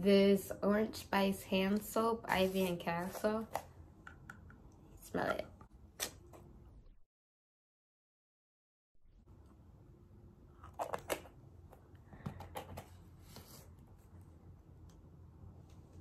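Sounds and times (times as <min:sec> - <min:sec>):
faint room background: 0:00.0 - 0:07.0.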